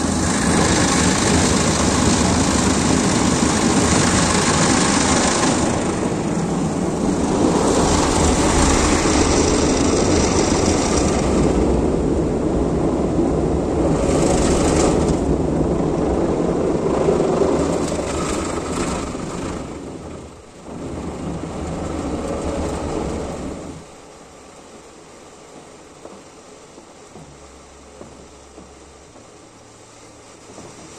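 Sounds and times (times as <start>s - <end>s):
low machine drone: 0.0s - 24.8s, 27.0s - 30.9s
car wash brushes and water spray: 0.0s - 30.9s.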